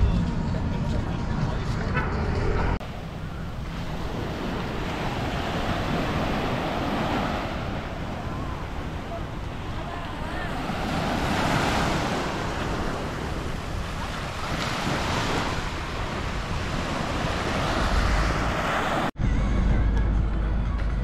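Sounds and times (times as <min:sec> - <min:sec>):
wind buffeting microphone: 0:00.0 - 0:19.1
surf breaking on sandy beach: 0:02.8 - 0:19.1.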